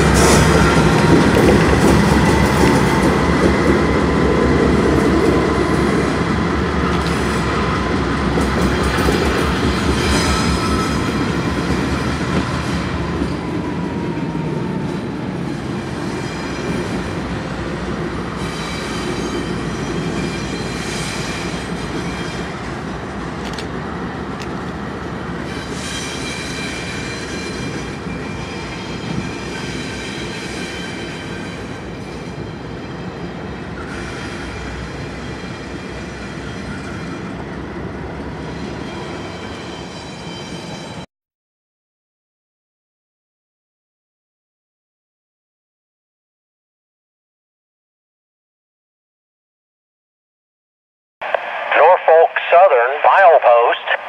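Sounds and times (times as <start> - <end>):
steel wheels squealing on rails: 5.5 - 14.4, 15.4 - 23.1, 24.8 - 41.1.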